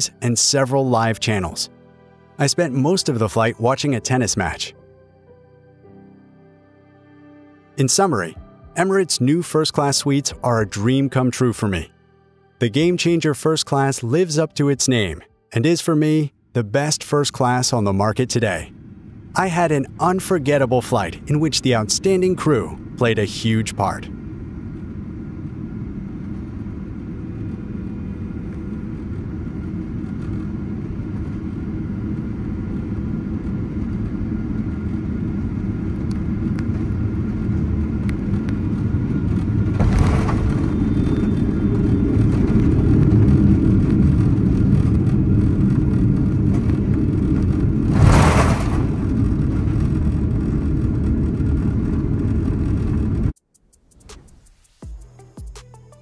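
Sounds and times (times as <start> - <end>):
vehicle rumble from inside: 24.0 - 53.4.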